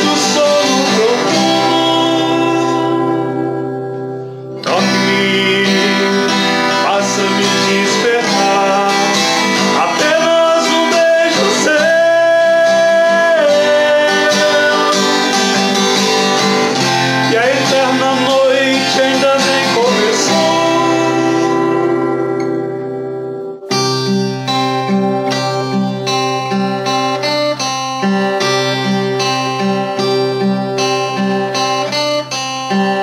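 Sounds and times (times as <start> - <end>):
man singing: 0.0 - 4.0, 4.6 - 22.8
acoustic guitar strumming: 0.0 - 33.0.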